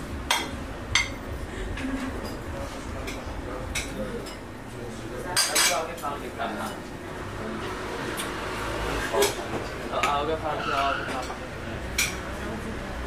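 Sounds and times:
murmur of voices: 0:01.3 - 0:13.0
kitchen noise: 0:05.2 - 0:07.0, 0:07.6 - 0:12.6.

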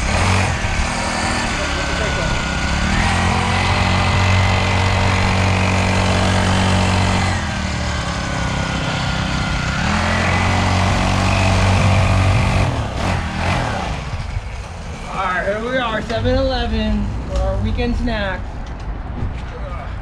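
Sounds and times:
motorcycle engine running: 0:00.0 - 0:15.3.

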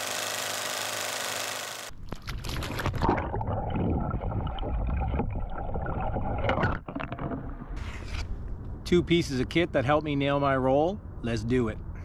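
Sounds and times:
water splashing and gurgling: 0:01.9 - 0:07.8.

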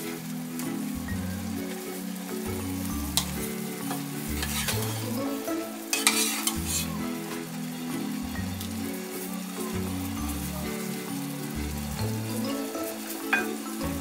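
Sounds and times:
boiling water bubbling: 0:00.0 - 0:14.0
clinks in a pot: 0:13.3 - 0:13.6.

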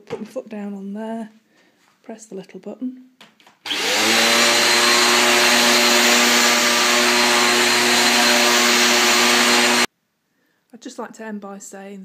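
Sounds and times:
vacuum cleaner running: 0:03.7 - 0:09.9.

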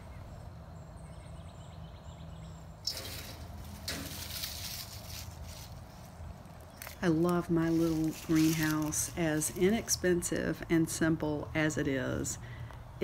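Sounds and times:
footsteps crunching through leaves: 0:02.9 - 0:09.8.

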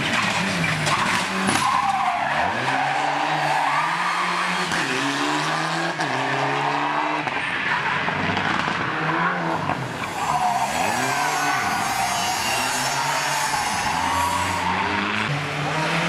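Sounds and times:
rally car engines revving: 0:00.0 - 0:16.0
tyres squealing: 0:10.0 - 0:15.0.

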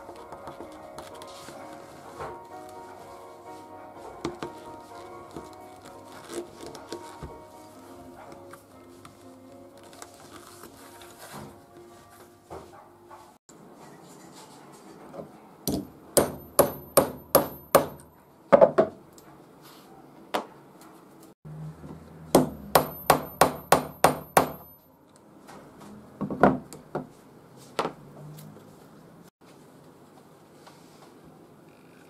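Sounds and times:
hammer strikes on fasteners: 0:15.7 - 0:18.9, 0:22.3 - 0:24.8.

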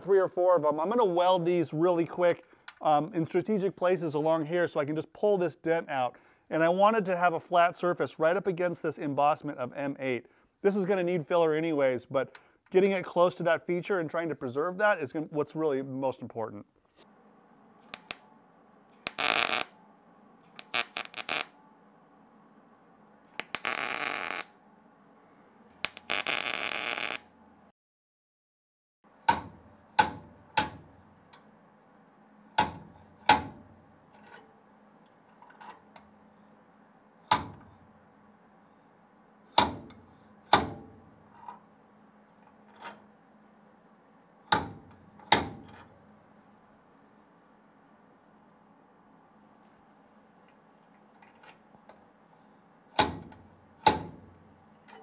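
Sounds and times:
welder crackling: 0:17.9 - 0:18.2, 0:19.0 - 0:19.7, 0:20.5 - 0:21.5, 0:23.4 - 0:24.5, 0:25.8 - 0:27.3.

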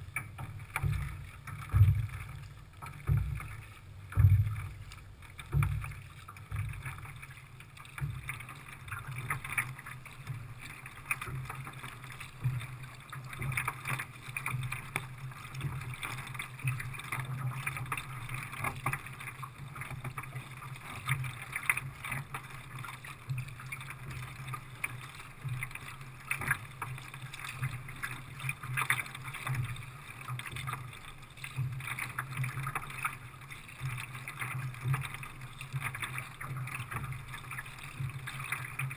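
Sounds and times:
low steady rumble: 0:00.0 - 0:13.4
water splashing against kayak: 0:00.0 - 0:38.9.

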